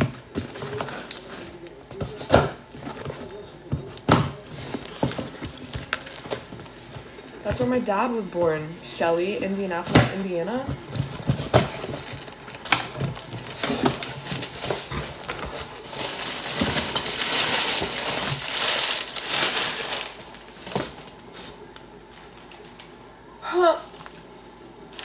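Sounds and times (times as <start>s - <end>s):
packaging crinkling: 2.7s - 7.4s, 10.8s - 23.0s.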